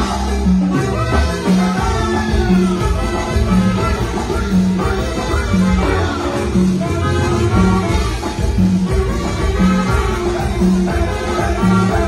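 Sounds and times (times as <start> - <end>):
live band music: 0.0 - 12.0
saxophones playing melody: 0.0 - 12.0.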